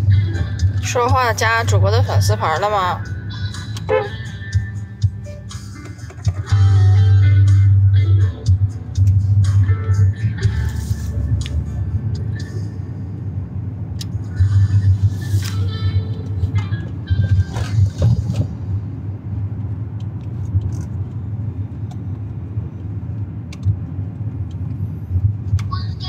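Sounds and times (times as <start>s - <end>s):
car rumble from inside cabin: 0.0s - 26.0s.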